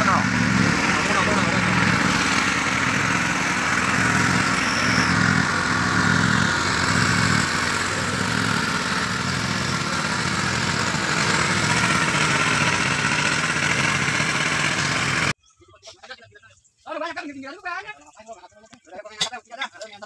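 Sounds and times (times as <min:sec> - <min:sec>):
drill rig engine running: 0:00.0 - 0:15.4
water pump engine running: 0:00.0 - 0:15.4.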